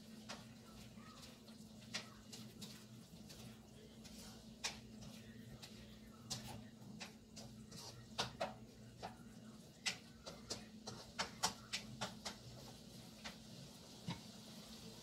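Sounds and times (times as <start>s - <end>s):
spatula scraping a wok: 7.4s - 8.2s.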